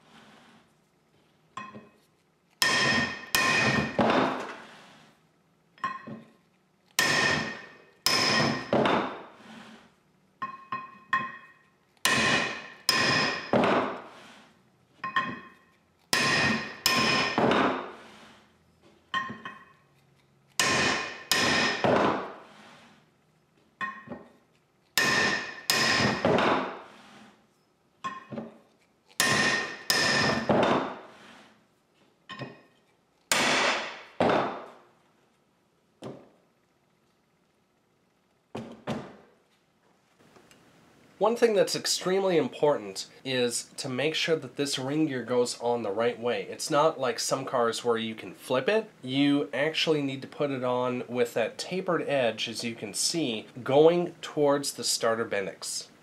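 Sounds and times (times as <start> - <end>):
hammer striking steel: 2.6 - 4.5, 7.0 - 9.2, 10.4 - 14.1, 15.0 - 18.0, 20.6 - 22.4, 25.0 - 26.8, 29.2 - 31.1, 33.3 - 34.8.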